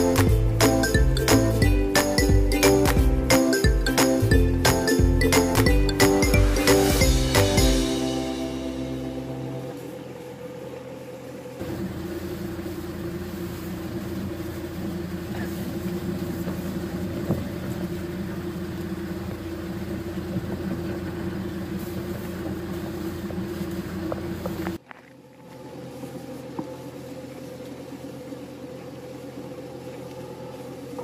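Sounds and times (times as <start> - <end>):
small sprayer engine running: 0.0 - 24.8.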